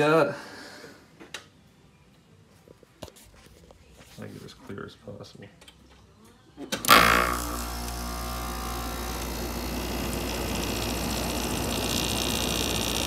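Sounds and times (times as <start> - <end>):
air conditioner running: 6.9 - 13.0.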